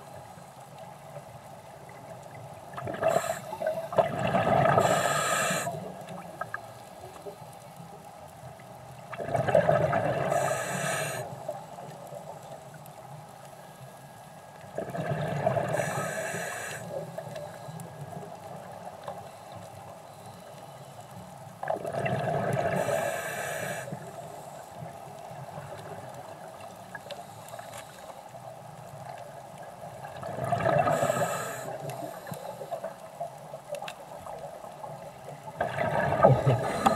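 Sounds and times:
underwater background hiss: 0.0 - 36.9
exhaled breath bubbling underwater: 2.8 - 5.8, 35.6 - 36.9.

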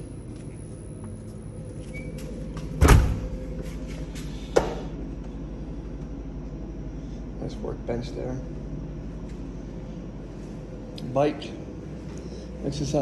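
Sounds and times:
door shutting with heavy thud: 2.7 - 3.4.

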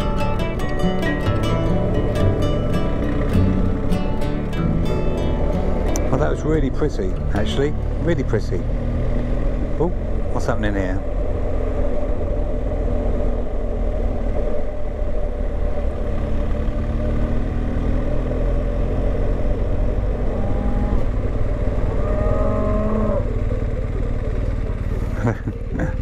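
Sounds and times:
motorcycle engine rumble: 0.0 - 26.0
cow mooing: 20.2 - 21.2, 21.8 - 23.4.

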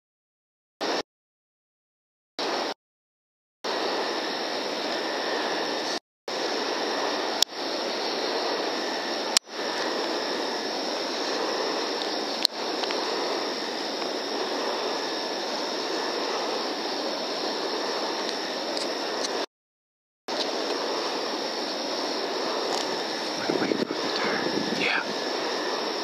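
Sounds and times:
faint high whine: 2.4 - 2.8, 3.7 - 19.5, 20.3 - 26.0
rushing background noise: 20.3 - 26.0.

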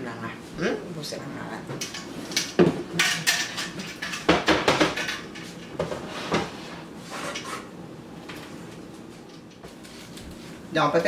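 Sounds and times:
pots and utensils clattering: 1.8 - 7.7.

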